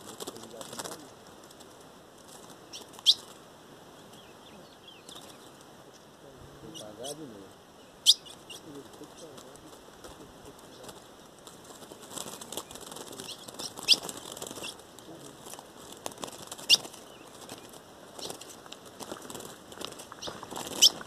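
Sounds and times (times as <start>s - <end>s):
bird wings fluttering: 0.0s - 3.5s, 5.0s - 5.8s, 8.6s - 21.0s
bird chip call: 2.7s - 3.3s, 7.9s - 8.7s.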